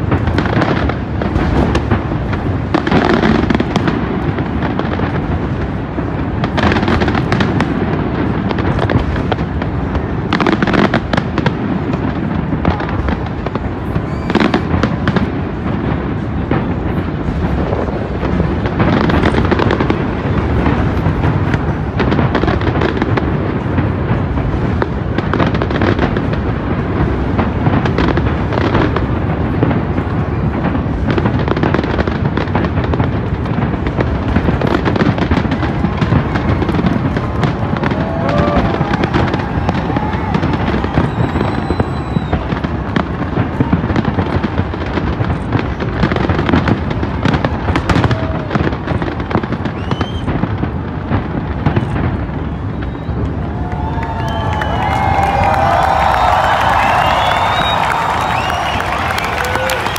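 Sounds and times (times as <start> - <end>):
firework bangs and crackles: 0.0 - 59.9
high firework whistle: 12.6 - 15.2, 34.5 - 44.4, 49.4 - 50.6, 51.6 - 59.9.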